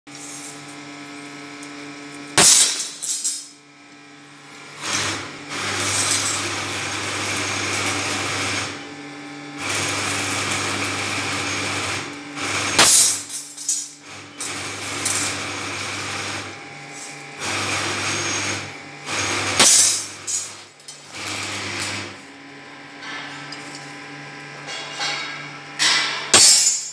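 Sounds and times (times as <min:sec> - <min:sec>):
machine running: 0:04.8 - 0:08.8, 0:09.6 - 0:23.8
hammer striking steel on anvil: 0:24.7 - 0:26.9.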